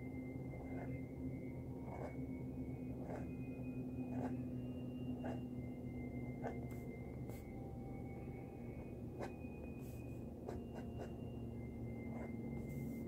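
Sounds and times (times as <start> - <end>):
low hum: 0.0 - 13.0
pen nib scratching paper: 0.6 - 0.9, 1.8 - 2.2, 2.9 - 3.3, 4.1 - 4.4, 5.2 - 5.4, 12.1 - 12.4.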